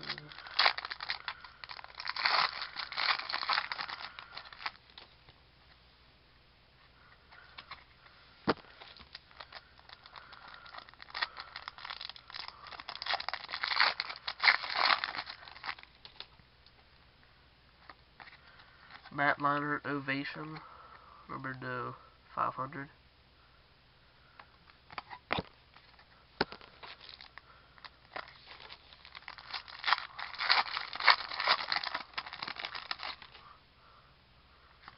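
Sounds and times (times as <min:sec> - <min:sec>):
wrapper crinkling and tearing: 0:00.0 - 0:05.1, 0:08.6 - 0:16.3, 0:25.8 - 0:33.4.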